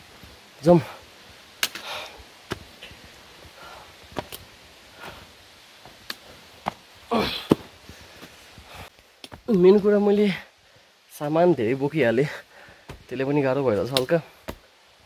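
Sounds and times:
footsteps on rocky trail: 1.3s - 10.4s, 12.2s - 14.7s
person grunting: 7.1s - 7.6s.

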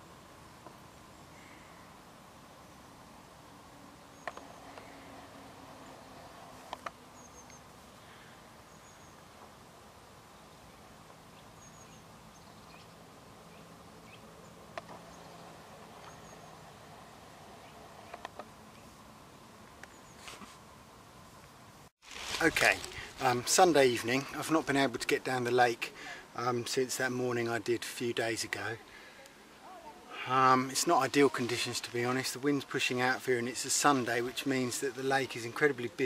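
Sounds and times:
faint steady hum: 0.0s - 36.0s
small birds chirping: 4.0s - 9.4s, 10.2s - 20.4s.

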